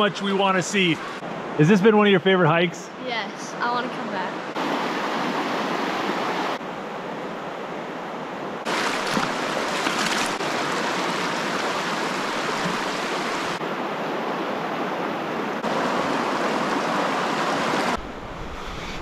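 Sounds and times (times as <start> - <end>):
river water rushing: 3.6 - 18.2.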